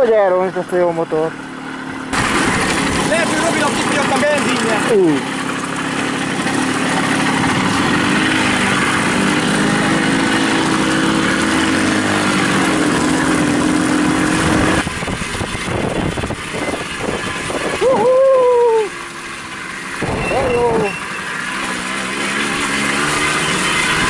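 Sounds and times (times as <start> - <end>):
moped engine running: 0.0 - 24.0
wide rushing noise: 2.0 - 4.2.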